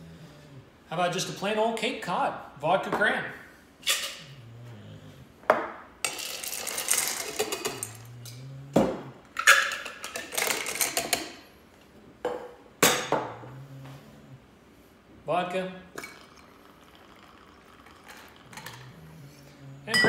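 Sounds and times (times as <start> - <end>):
ice cubes clinking into glass: 6.1 - 8.1.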